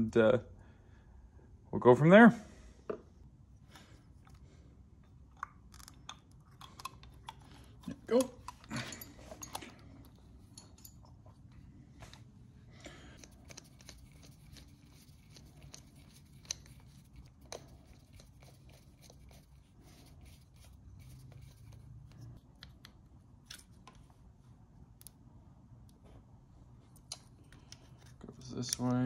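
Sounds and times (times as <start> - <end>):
low steady hum: 0.0 - 29.0
small parts and tools clicking: 13.0 - 24.0, 27.0 - 29.0.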